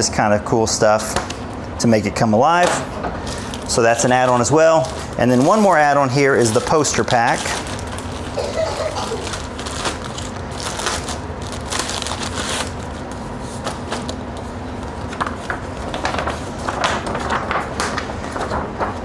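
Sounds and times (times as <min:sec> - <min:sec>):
paper sheets rustling: 0:02.6 - 0:19.0
plastic bags crinkling: 0:03.2 - 0:13.0.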